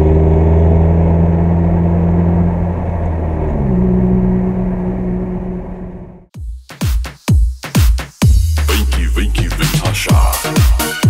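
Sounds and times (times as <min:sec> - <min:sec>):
car engine drone: 0:00.0 - 0:06.3
road noise: 0:00.0 - 0:06.3.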